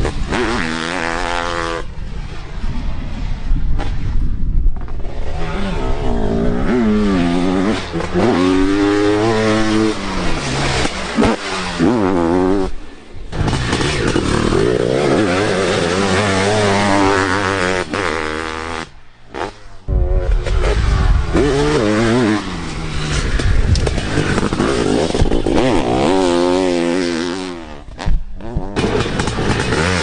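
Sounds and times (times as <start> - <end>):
motorcycle engines revving: 4.8 - 30.0.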